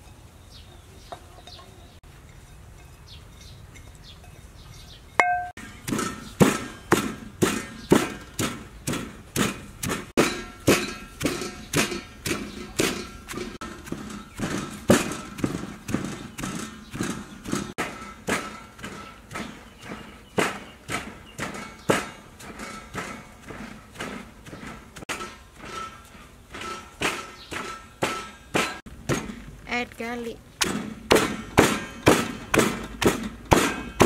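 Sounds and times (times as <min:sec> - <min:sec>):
ringing clink: 0:02.8 - 0:05.6
pestle pounding in stone mortar: 0:05.2 - 0:29.6, 0:30.6 - 0:34.0.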